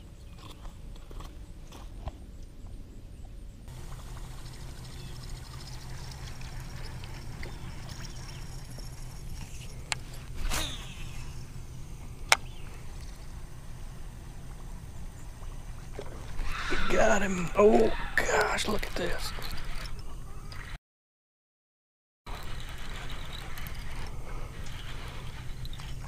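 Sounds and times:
fishing reel whirring: 3.7 - 20.7, 22.3 - 26.0.

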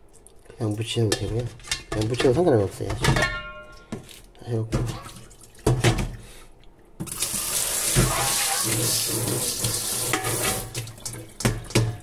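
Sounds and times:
water running into sink: 7.0 - 12.0.

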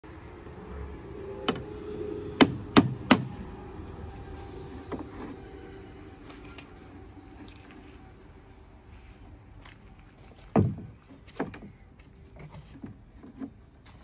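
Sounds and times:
hammer striking wood: 2.4 - 3.4.

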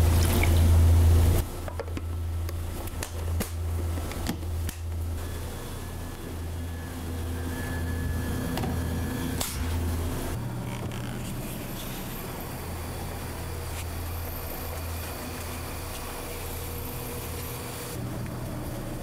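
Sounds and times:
kitchen machinery humming: 0.0 - 19.0.

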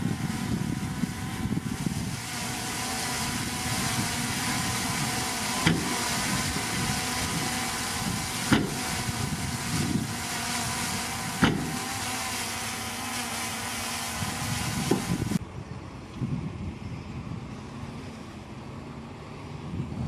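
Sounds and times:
heavy diesel engine running: 0.0 - 16.1
sharp knocks: 11.4 - 11.8.

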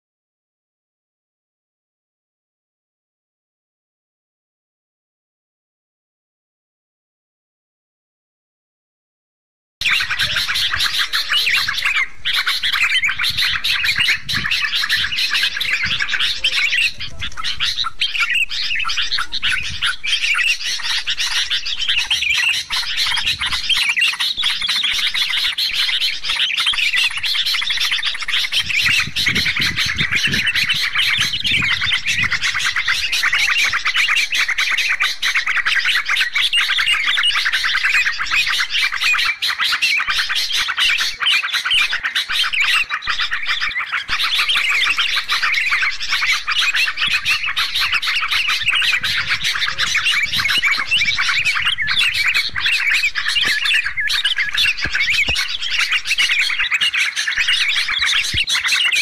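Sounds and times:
bulbuls chattering and calling: 9.8 - 59.0.

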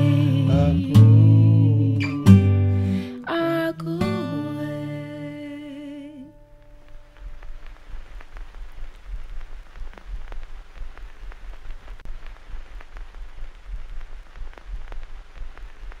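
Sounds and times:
rain drops: 0.0 - 16.0
steady low rumble: 6.4 - 16.0.

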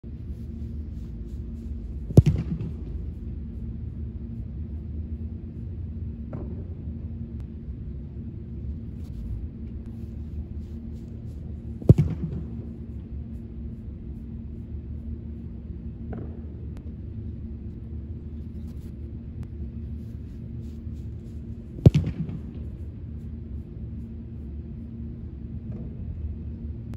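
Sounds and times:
steady low hum: 0.0 - 26.9
boot kicking football: 0.4 - 3.3, 8.9 - 13.1, 20.0 - 23.3.

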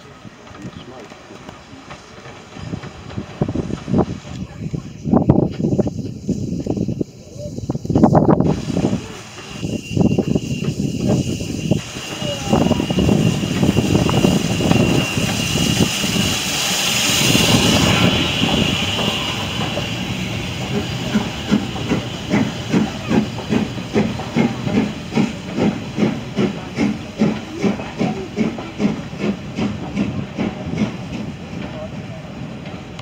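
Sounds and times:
steam locomotive hissing: 0.0 - 33.0
train rhythmic beat: 7.7 - 33.0.

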